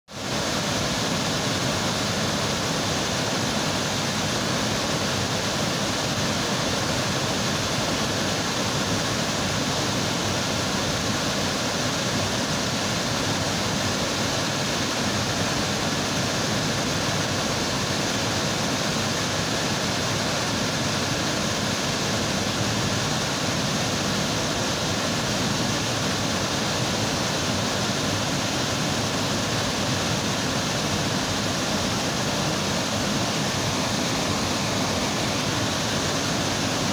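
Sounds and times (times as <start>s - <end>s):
waterfall rushing: 0.1s - 36.9s.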